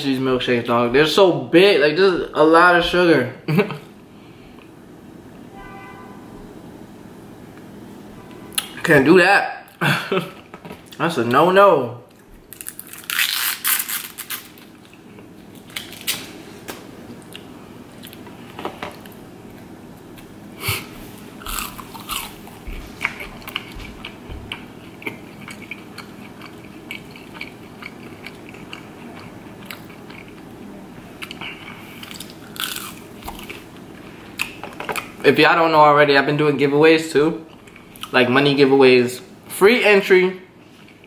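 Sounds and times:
close chewing and biting: 21.5s - 30.5s, 31.2s - 33.6s.

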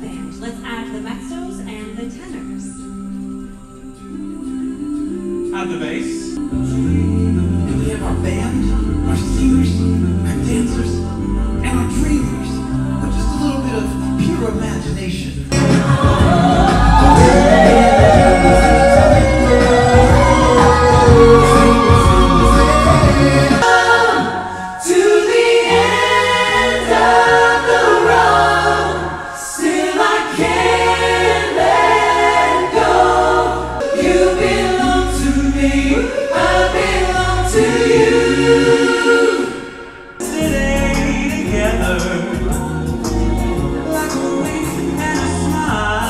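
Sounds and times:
a cappella ensemble singing: 0.0s - 46.0s
low held vocal bass: 6.4s - 23.6s, 40.2s - 46.0s.

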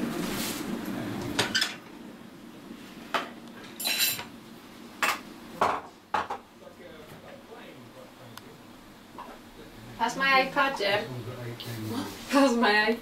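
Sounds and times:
dishes and cutlery clinking: 3.2s - 4.3s.

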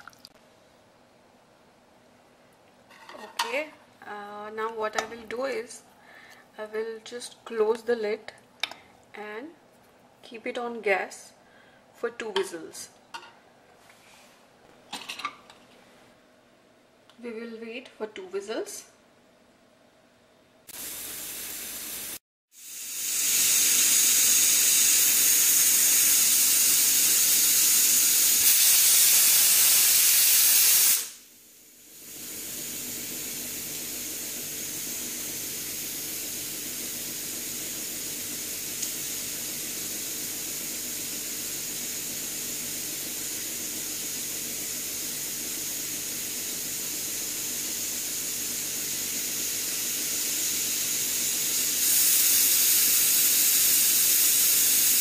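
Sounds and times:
pressure cooker hissing: 20.7s - 55.0s.

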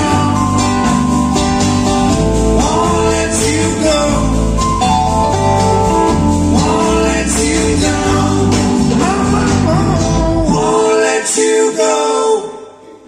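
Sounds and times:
man singing lead vocal: 0.0s - 1.0s, 2.5s - 4.9s, 6.3s - 13.0s
electric bass: 0.0s - 10.8s
live band playing: 0.0s - 11.3s.

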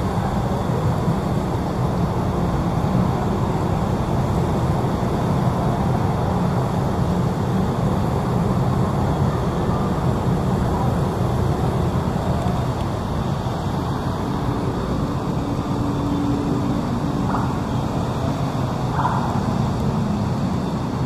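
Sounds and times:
low vehicle rumble: 0.0s - 21.0s.

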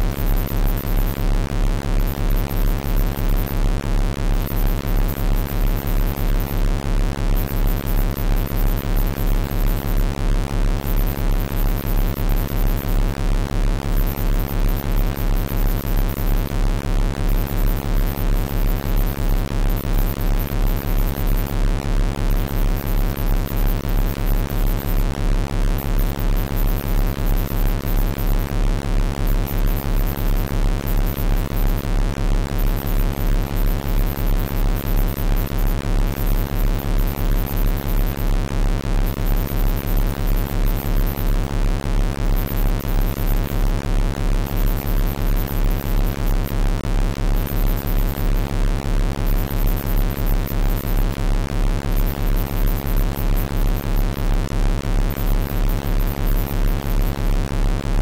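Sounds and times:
low pulsing electronic tone: 0.0s - 58.0s.

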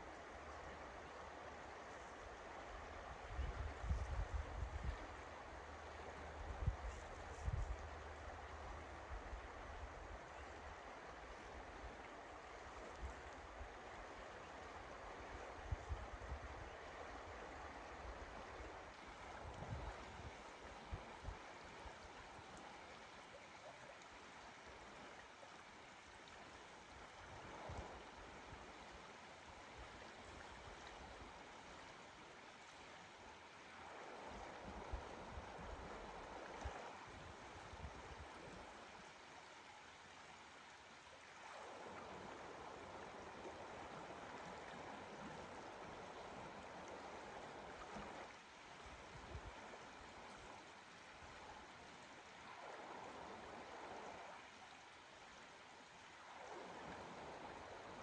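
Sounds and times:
river rushing: 5.0s - 58.0s.

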